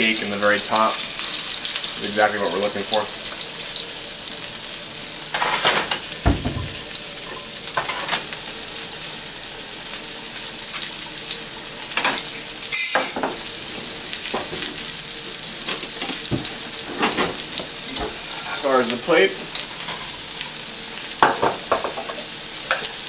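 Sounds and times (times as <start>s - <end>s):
fish sizzling in frying pans: 0.0s - 23.0s
pots and pans clattering: 5.3s - 8.4s, 12.0s - 18.6s, 19.4s - 20.2s, 21.2s - 23.0s.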